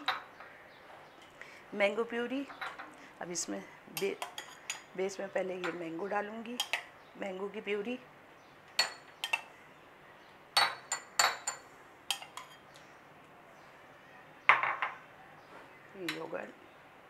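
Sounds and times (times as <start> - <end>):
metal spoon clinking on glass: 8.8 - 9.5, 10.6 - 12.6.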